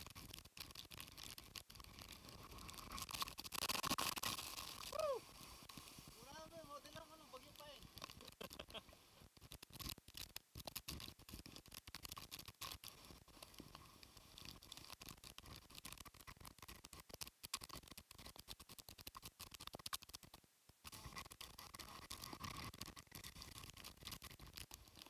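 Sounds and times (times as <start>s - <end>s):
rain and spray hitting microphone: 0.0s - 18.7s.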